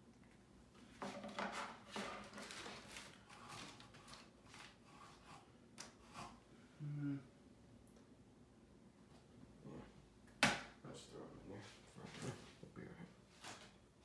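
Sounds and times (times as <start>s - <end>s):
cards and packaging crinkling: 1.9s - 4.8s.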